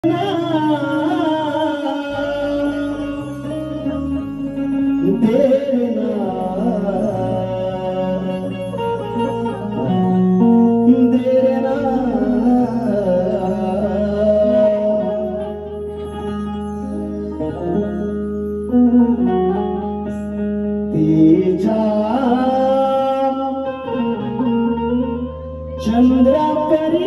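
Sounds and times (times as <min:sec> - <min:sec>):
man singing devotional song: 0:00.0 - 0:09.2, 0:10.7 - 0:15.7, 0:20.9 - 0:24.0, 0:25.8 - 0:27.0
sustained instrumental accompaniment: 0:00.0 - 0:27.0.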